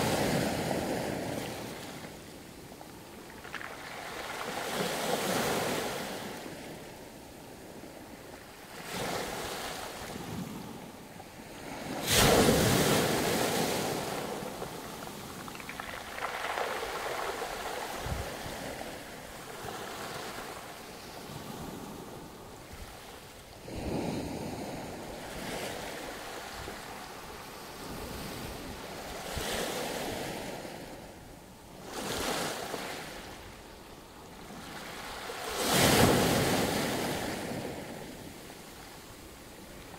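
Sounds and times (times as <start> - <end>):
waves breaking on pebble beach: 3.1 - 6.6, 11.5 - 21.8.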